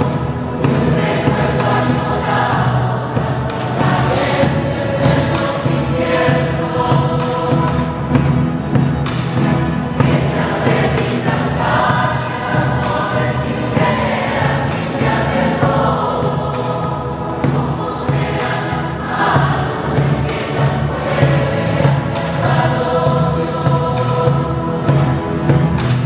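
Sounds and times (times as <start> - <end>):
hand drum beat: 0.0 - 26.0
large choir singing: 0.0 - 26.0
strummed acoustic guitars: 0.0 - 26.0.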